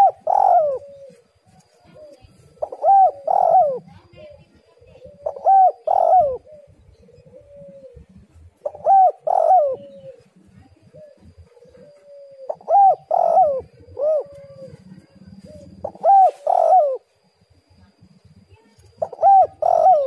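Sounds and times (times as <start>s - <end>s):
dove cooing: 0.0s - 18.2s, 18.8s - 20.0s.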